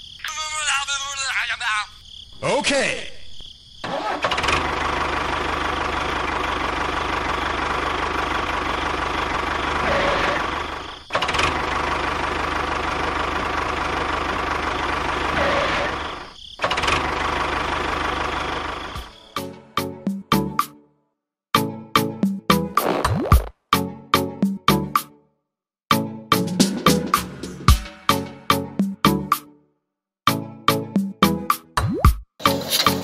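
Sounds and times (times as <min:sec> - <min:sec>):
tractor engine running: 0:03.8 - 0:19.2.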